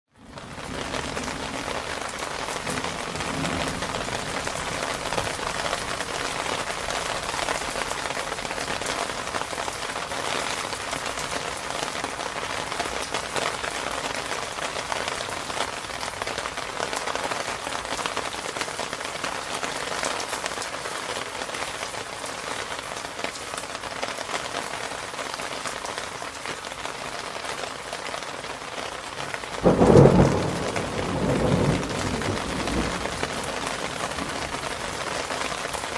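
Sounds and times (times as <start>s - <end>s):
steady rain falling: 0.1s - 35.9s
rumble of thunder: 0.3s - 5.9s, 29.6s - 35.1s.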